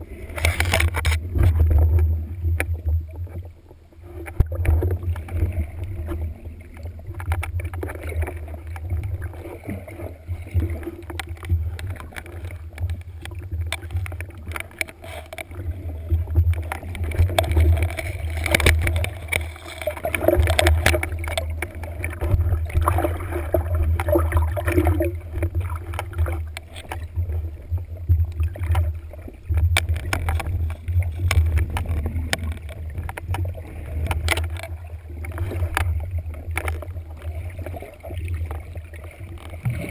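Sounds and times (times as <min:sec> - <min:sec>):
muffled underwater rumble: 0:00.0 - 0:39.9
water sloshing: 0:00.0 - 0:39.9
clicks and knocks: 0:16.4 - 0:22.9.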